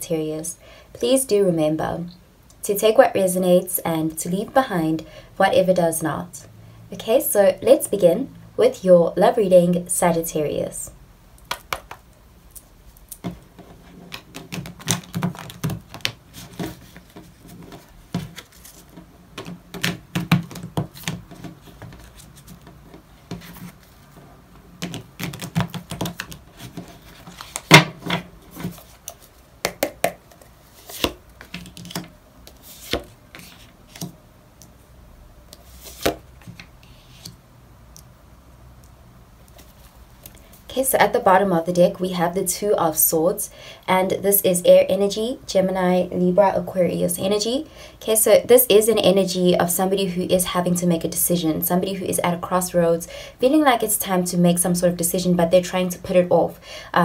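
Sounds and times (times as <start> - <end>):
cards being shuffled: 13.2 - 24.1, 24.8 - 34.2, 35.5 - 37.4.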